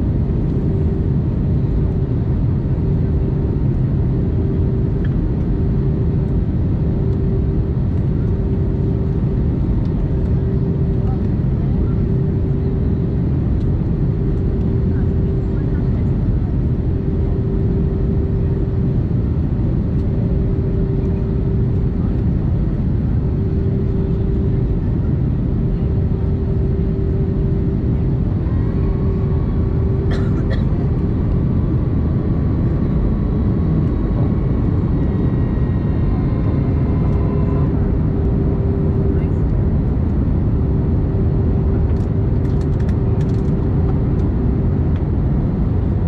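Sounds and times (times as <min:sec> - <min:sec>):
engine and airflow roar: 0:00.0 - 0:46.0
steady cabin hum: 0:19.6 - 0:37.3.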